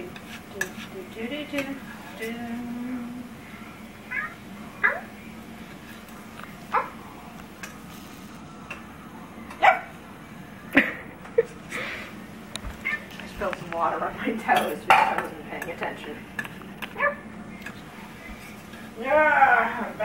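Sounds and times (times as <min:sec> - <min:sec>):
cat meowing: 0:04.1 - 0:05.1.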